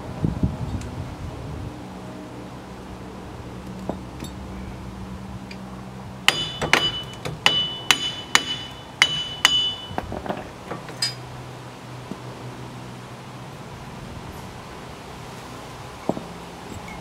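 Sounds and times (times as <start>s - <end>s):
hammer striking metal: 6.3s - 10.1s.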